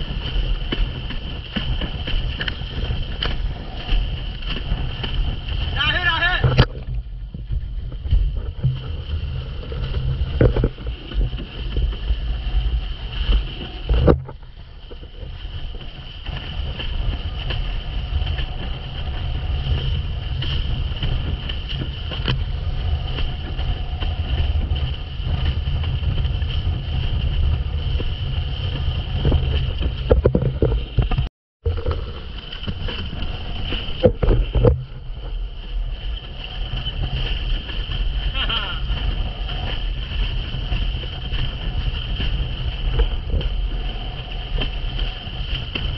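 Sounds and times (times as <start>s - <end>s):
water rushing under board: 0.0s - 45.9s
wind buffeting microphone: 0.0s - 45.9s.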